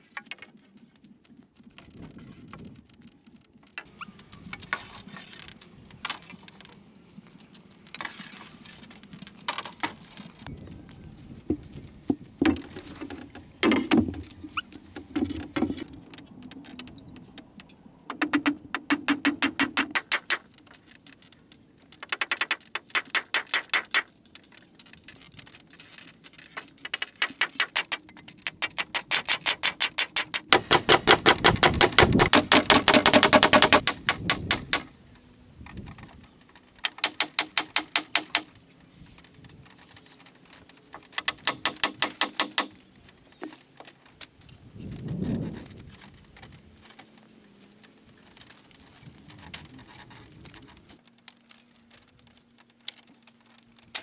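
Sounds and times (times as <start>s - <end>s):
hammer striking nails into wood: 18.1s - 20.4s, 28.6s - 34.9s, 36.8s - 38.5s, 41.2s - 42.8s.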